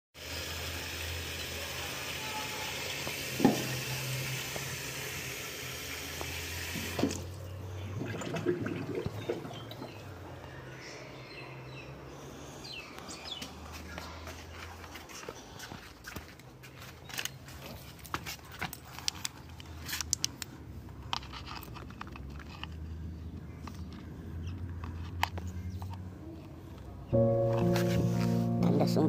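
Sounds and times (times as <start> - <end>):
tap water pouring into sink: 0.2 - 10.0
faucet knock: 3.1 - 3.8.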